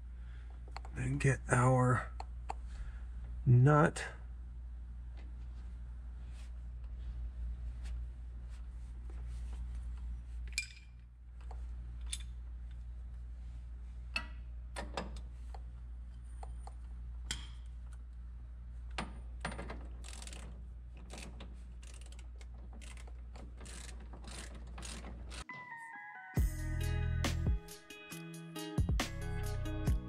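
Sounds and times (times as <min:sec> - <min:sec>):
ratchet wrench clicking: 0:20.0 - 0:25.5.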